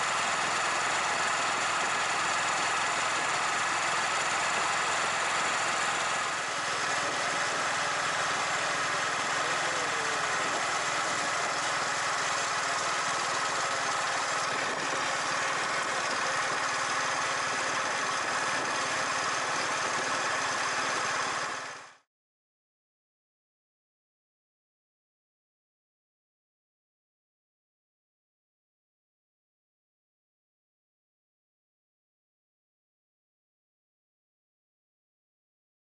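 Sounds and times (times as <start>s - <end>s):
motorcycle engine running: 0.0s - 22.0s
road noise: 0.0s - 22.0s
wind noise: 6.4s - 8.6s, 10.3s - 11.9s, 13.9s - 21.2s.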